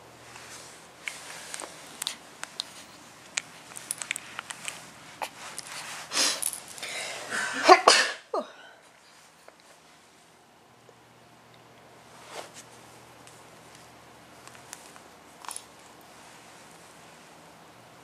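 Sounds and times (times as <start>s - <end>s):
small clicks and rustles: 0.3s - 6.8s, 12.3s - 16.9s
baby sneezing: 7.6s - 8.3s.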